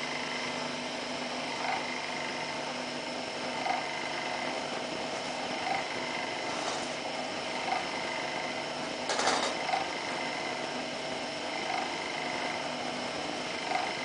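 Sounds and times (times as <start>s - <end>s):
electric motor humming: 0.0s - 14.0s.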